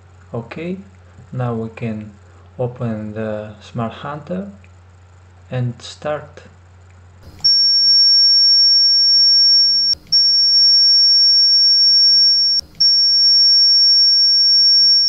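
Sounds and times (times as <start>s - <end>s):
high-pitched sine tone: 7.3s - 15.0s.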